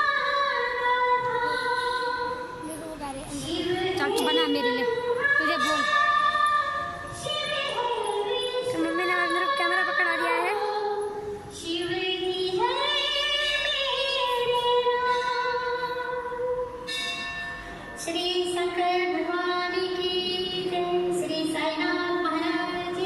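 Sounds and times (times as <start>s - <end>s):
person singing devotional song: 0.0s - 16.8s.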